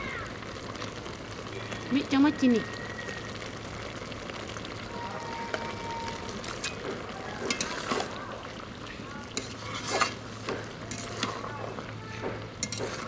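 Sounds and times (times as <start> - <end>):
curry simmering hiss: 0.0 - 13.0
steel spatula scraping pan: 7.5 - 8.1, 9.4 - 11.5, 12.6 - 13.0.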